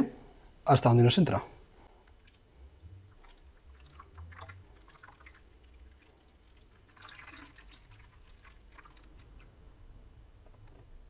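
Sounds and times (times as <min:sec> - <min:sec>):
water dripping and trickling: 0:01.8 - 0:09.7
water gurgling: 0:02.0 - 0:10.0.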